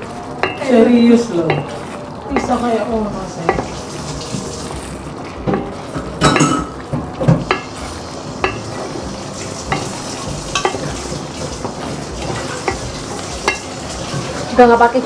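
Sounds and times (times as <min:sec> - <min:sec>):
sauce sizzling: 0:00.0 - 0:15.0
spatula scraping a pot: 0:07.4 - 0:14.7.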